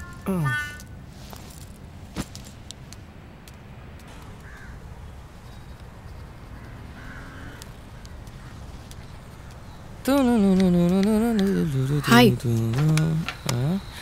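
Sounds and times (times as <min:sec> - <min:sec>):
crow cawing: 0:00.0 - 0:00.9, 0:04.3 - 0:04.9, 0:06.4 - 0:08.8, 0:11.5 - 0:12.2.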